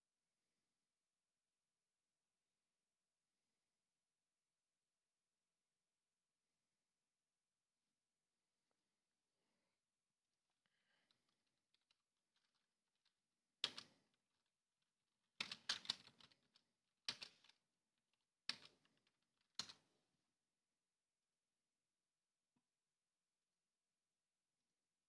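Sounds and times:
computer keyboard typing: 10.9 - 14.3, 15.3 - 17.7, 18.3 - 19.8.

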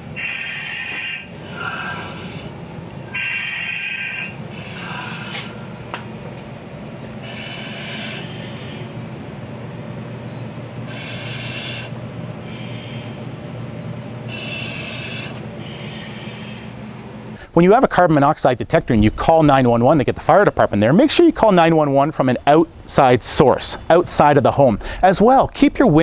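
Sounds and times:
steady low hum: 0.0 - 26.0
breathing through regulator mask: 0.2 - 5.9, 7.2 - 9.0, 10.8 - 13.6, 14.3 - 17.5.

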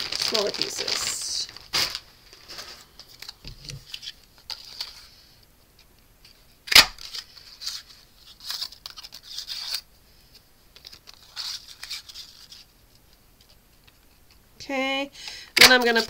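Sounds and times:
paper rustling: 0.0 - 5.5, 6.2 - 14.3
paper punch snapping: 6.7 - 7.0.

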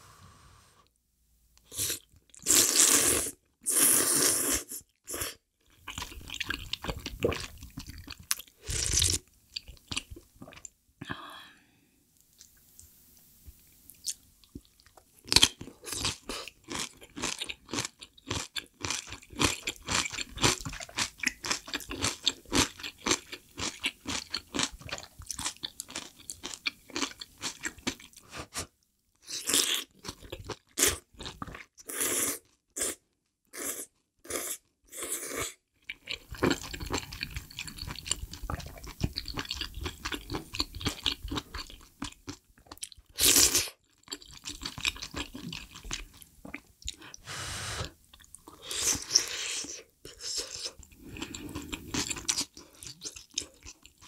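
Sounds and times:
soft chewing: 12.2 - 28.8, 43.8 - 47.2, 47.8 - 54.0.

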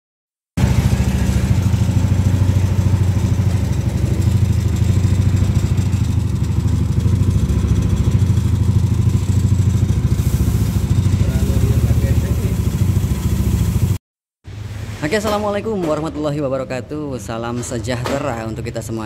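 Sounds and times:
scooter engine idling: 0.6 - 14.0.

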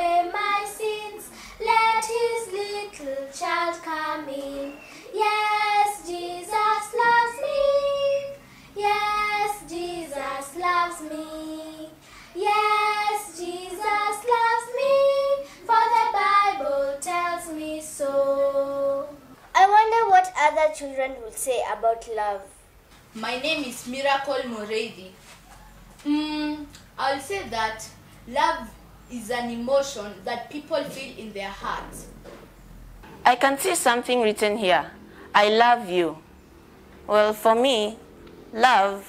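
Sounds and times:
girls singing unaccompanied: 0.0 - 19.4.

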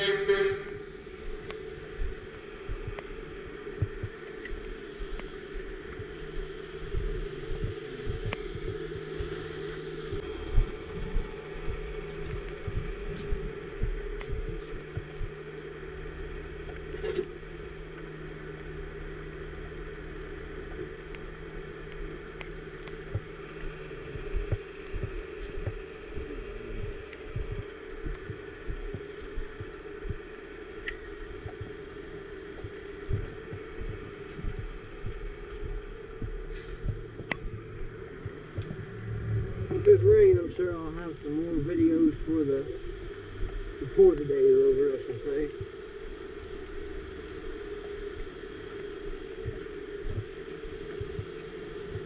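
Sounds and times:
low thuds: 32.6 - 40.9
diesel engine running: 36.3 - 42.6.

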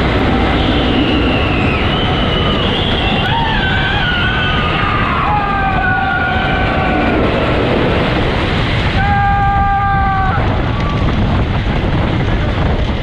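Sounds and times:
roller coaster rumbling on track: 0.0 - 13.0
riders screaming: 0.6 - 8.1, 8.9 - 11.2.

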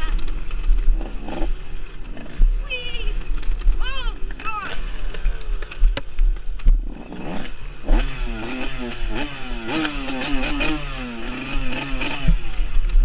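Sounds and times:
dirt bike engine revving: 0.0 - 5.9, 6.6 - 13.0
bike knocking and clattering: 0.0 - 7.3.

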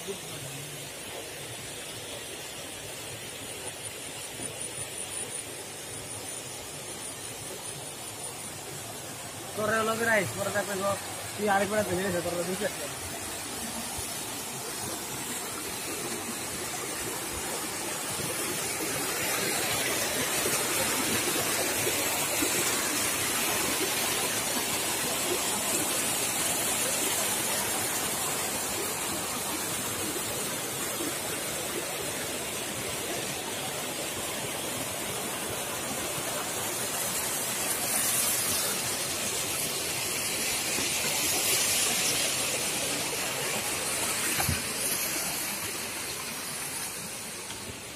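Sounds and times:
waterfall rushing over boulders: 0.0 - 47.9.

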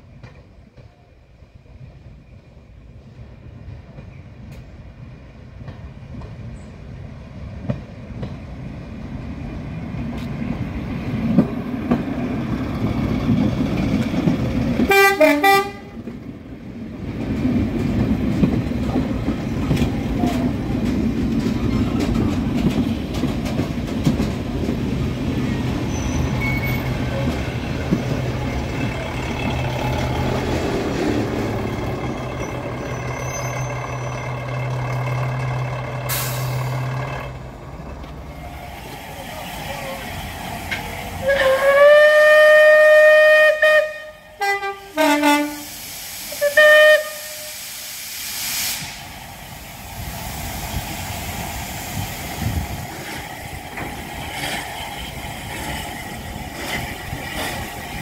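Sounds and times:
train engine and wheel rumble: 0.0 - 58.0
train horn toot: 14.9 - 16.0, 41.2 - 45.7, 46.4 - 47.6.

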